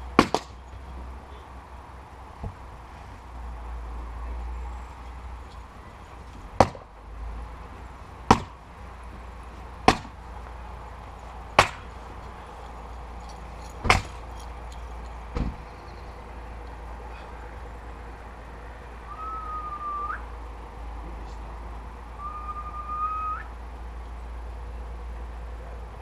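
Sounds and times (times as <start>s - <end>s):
axe chopping firewood: 0.1s - 0.6s, 6.5s - 6.9s, 8.2s - 8.6s, 9.8s - 10.2s, 11.5s - 12.0s, 13.8s - 14.3s.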